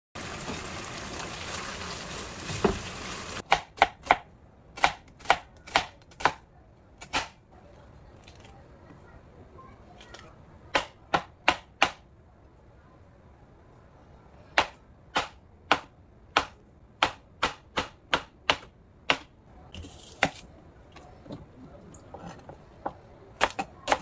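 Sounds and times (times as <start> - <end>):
knife chopping on cutting board: 20.2 - 20.4.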